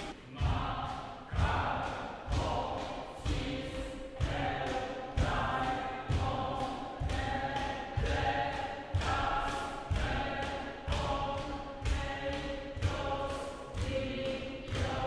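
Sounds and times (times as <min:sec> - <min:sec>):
group of voices chanting: 0:00.0 - 0:15.0
sharp thump beat: 0:00.0 - 0:15.0.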